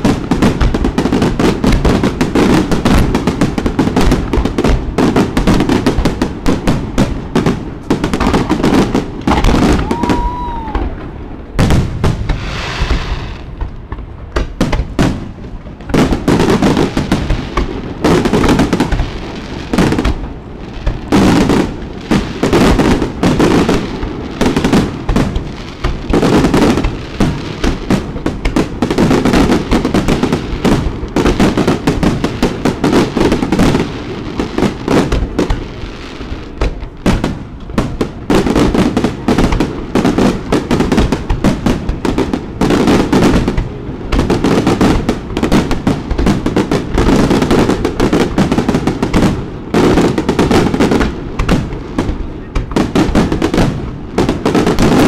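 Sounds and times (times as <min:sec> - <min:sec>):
firework shells bursting: 0:11.6 - 0:19.2.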